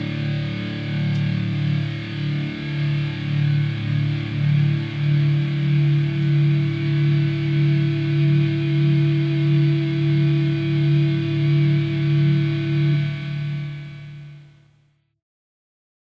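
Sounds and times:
distorted electric guitar: 0:00.0 - 0:14.6.

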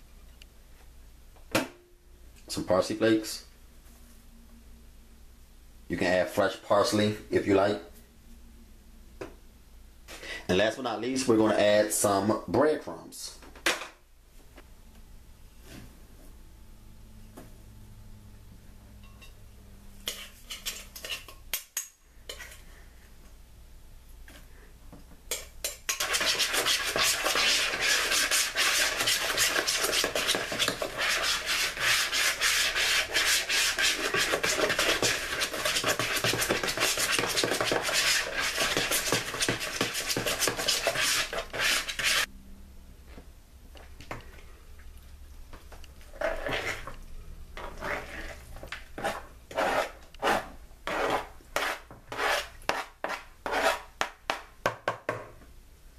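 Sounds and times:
utensil beating mixture in bowl: 0:20.0 - 0:21.4, 0:25.3 - 0:42.3, 0:46.0 - 0:47.0, 0:47.6 - 0:54.4.

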